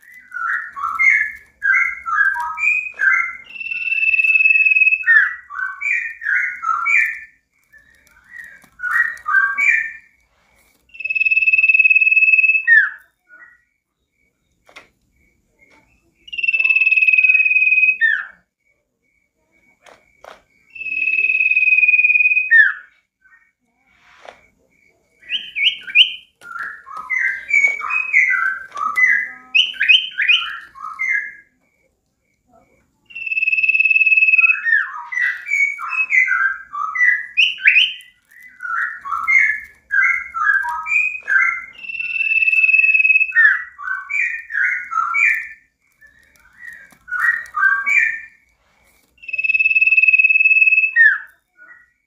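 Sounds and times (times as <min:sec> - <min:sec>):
songbird chirping: 0:00.0 - 0:52.0
high whistled bird note: 0:49.2 - 0:51.2.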